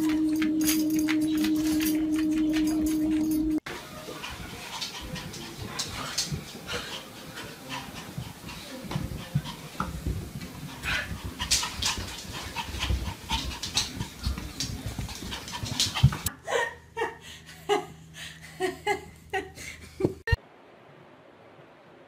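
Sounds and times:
dog panting: 4.0s - 16.3s.

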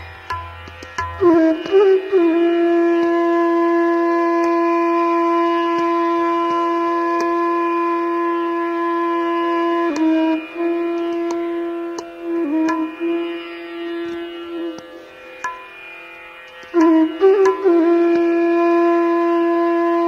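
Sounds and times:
wind instrument playing: 1.2s - 15.1s, 16.7s - 20.0s.

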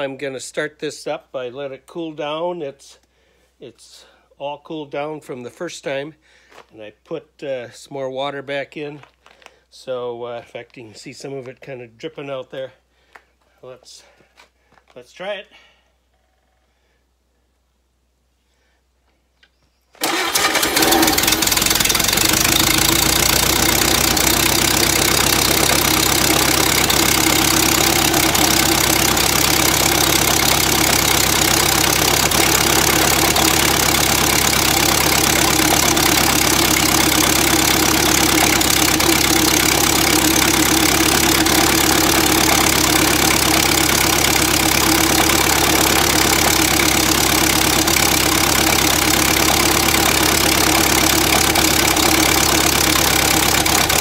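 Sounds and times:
engine starting and running: 20.0s - 54.0s.

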